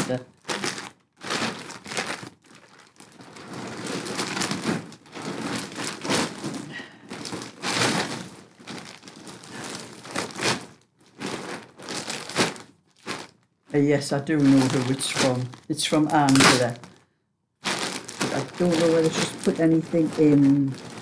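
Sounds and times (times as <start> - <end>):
parcel bag crinkling and rustling: 0.0 - 21.0.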